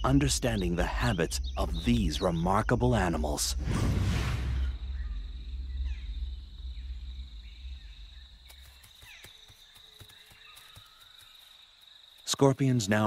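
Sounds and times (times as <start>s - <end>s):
low rumble: 0.0s - 8.8s
insect trill: 0.0s - 13.0s.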